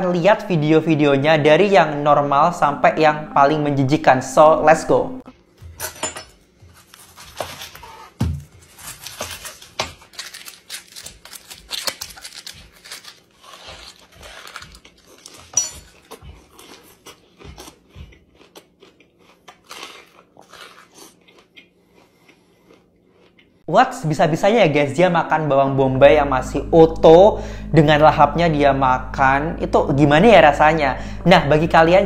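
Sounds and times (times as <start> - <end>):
crunching and chewing raw onion: 5.4 - 23.7
onion skin crackling: 6.8 - 17.8.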